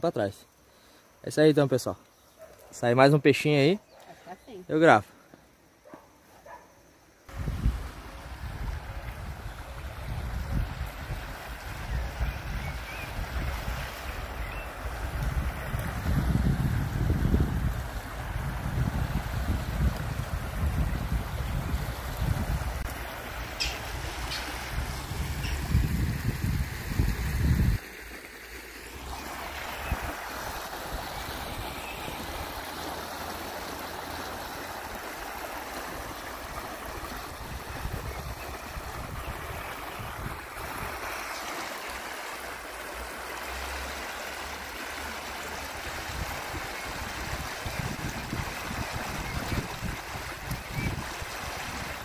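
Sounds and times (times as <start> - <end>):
river water rushing over rocks: 27.8 - 52.0.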